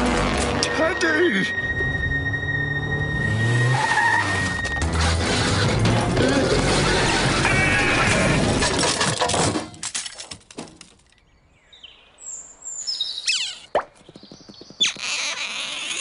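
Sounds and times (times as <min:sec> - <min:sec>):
cartoon car engine and tyres: 0:01.6 - 0:09.8
faint bird-like chirps: 0:11.7 - 0:16.0.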